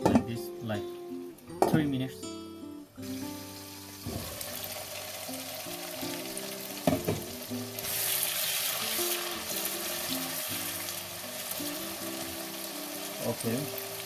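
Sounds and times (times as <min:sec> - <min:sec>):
onions sizzling in hot oil: 0:03.0 - 0:14.0.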